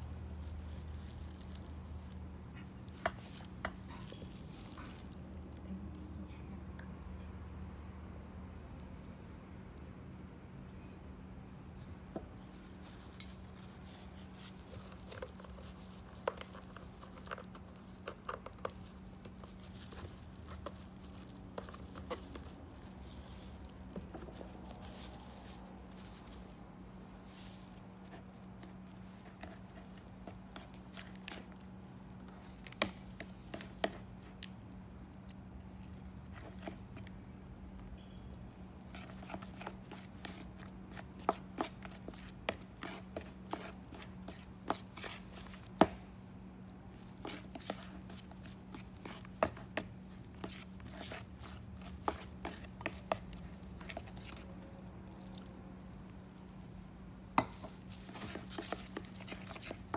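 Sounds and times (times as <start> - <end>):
spoon scraping plastic bowl: 47.2 - 54.4, 57.4 - 59.9.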